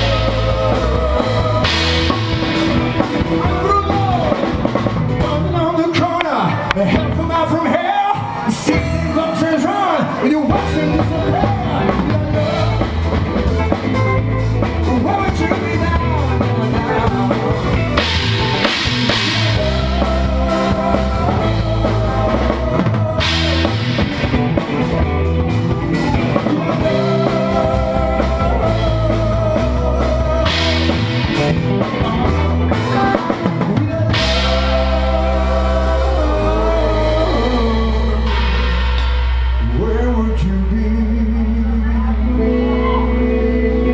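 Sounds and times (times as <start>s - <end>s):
drum kit steady beat: 0.0s - 6.2s, 10.4s - 42.6s
moving bass line: 0.0s - 7.8s, 8.5s - 43.9s
live rock band playing: 0.0s - 43.9s
wavering lead line: 10.6s - 43.9s.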